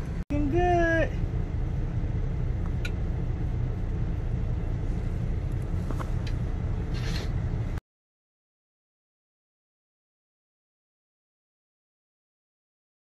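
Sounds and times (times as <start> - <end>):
truck engine idling: 0.0 - 7.8.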